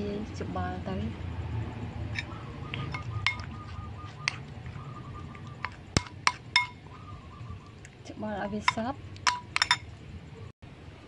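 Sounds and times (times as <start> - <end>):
spoon clinking: 2.1 - 6.8, 8.5 - 10.0
spoon stirring on china plate: 2.1 - 6.8, 7.8 - 9.9.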